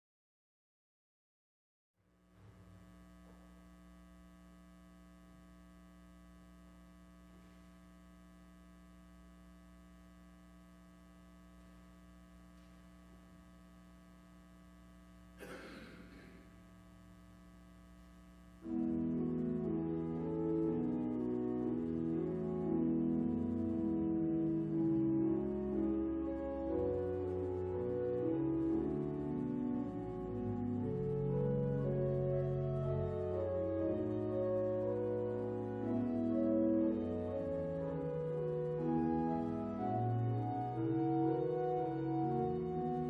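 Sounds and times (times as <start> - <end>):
steady low hum: 2.1 - 32.7
pipe organ chords: 18.0 - 43.0.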